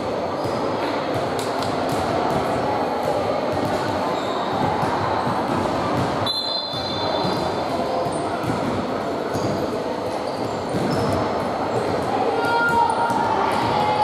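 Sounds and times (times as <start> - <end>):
din of voices and movement: 0.0 - 14.0
high whistle-like tone: 6.2 - 7.1.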